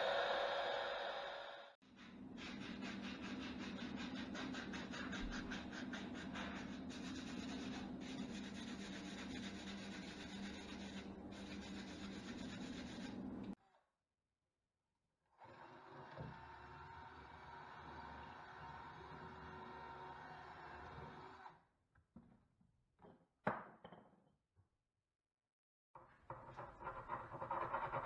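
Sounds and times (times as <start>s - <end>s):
hands rubbing wooden shaft: 2.0s - 13.4s.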